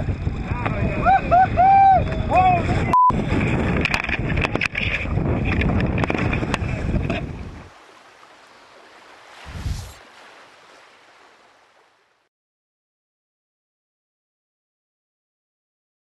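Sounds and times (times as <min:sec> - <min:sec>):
wind buffeting microphone: 0:00.0 - 0:07.8, 0:09.3 - 0:10.0
water splashing: 0:02.3 - 0:12.3.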